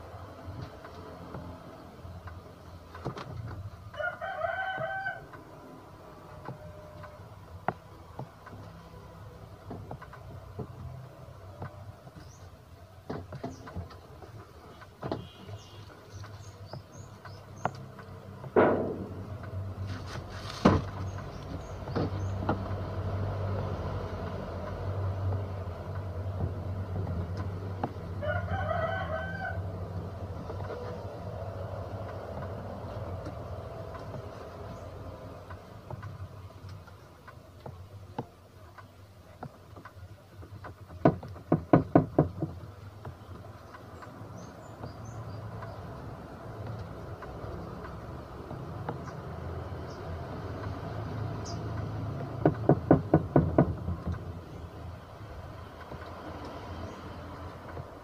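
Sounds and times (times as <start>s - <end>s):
rooster crowing: 4.0s - 5.4s, 28.2s - 29.7s.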